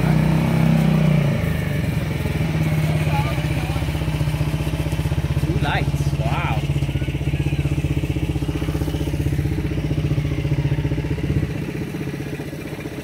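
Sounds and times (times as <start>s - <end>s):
quad bike engine idling: 0.0s - 13.0s.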